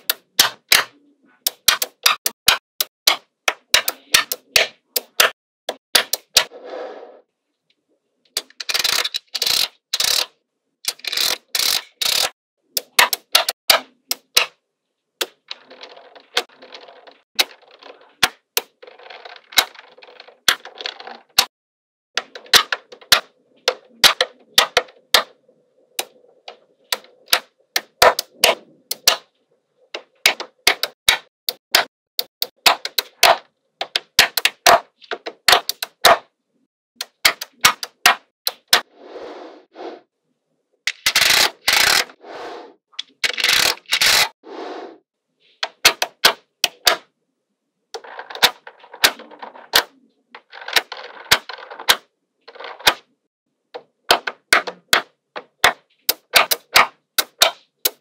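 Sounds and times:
magnetic balls clicking together: 0:00.0 - 0:06.5, 0:08.3 - 0:14.6, 0:29.9 - 0:36.2, 0:40.9 - 0:42.1, 0:43.0 - 0:44.3
balls clattering: 0:15.2 - 0:21.5, 0:48.0 - 0:53.1.

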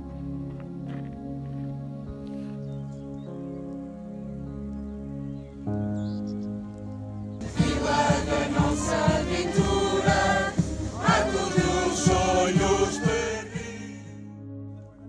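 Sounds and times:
steady drum beat: 0:07.4 - 0:13.8
group of voices singing: 0:07.4 - 0:14.2.

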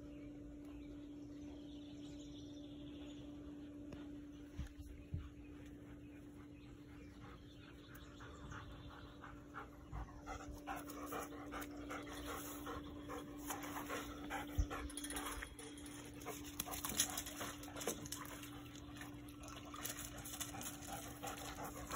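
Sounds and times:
dog panting: 0:05.0 - 0:19.0, 0:19.9 - 0:21.9.

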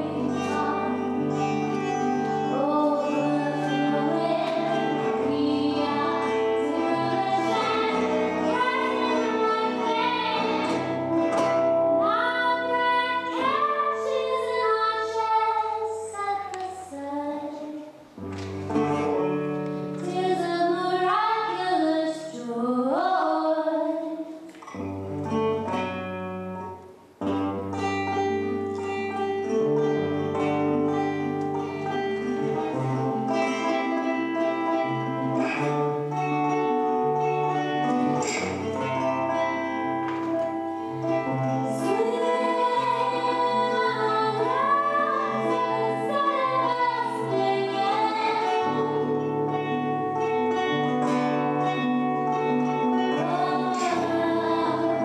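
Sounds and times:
woman singing: 0:00.0 - 0:18.0, 0:20.0 - 0:24.4, 0:41.6 - 0:49.8, 0:52.9 - 0:55.0
acoustic guitar: 0:00.0 - 0:55.0.

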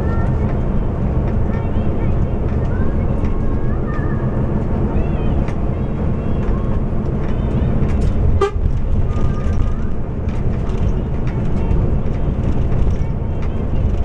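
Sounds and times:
bus engine accelerating: 0:00.0 - 0:14.0
road noise: 0:00.0 - 0:14.0
short horn toot: 0:08.4 - 0:08.7.

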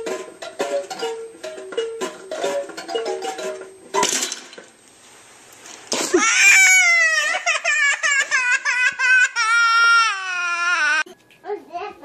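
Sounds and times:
toddler crying: 0:06.1 - 0:11.1.

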